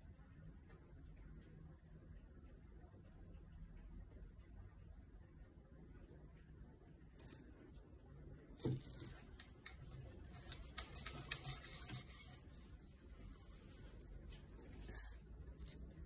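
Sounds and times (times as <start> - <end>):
hands rustling painting supplies: 8.6 - 15.8.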